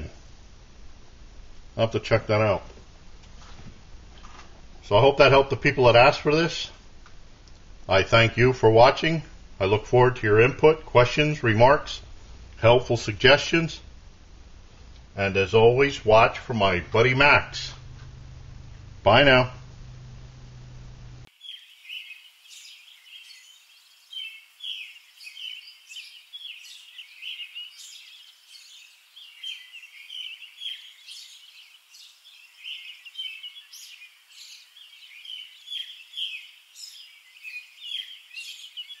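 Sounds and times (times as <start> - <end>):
birds chirping and calling: 21.3 - 39.0.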